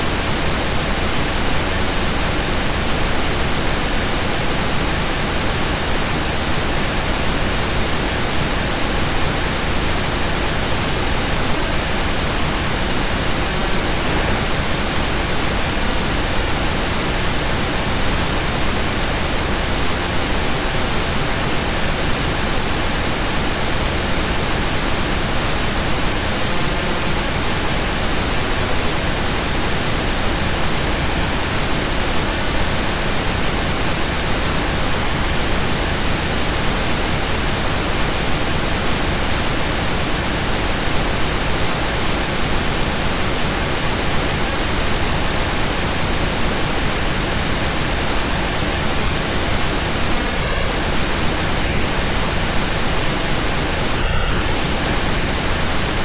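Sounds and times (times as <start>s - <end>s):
steady pink noise hiss: 0.0s - 56.0s.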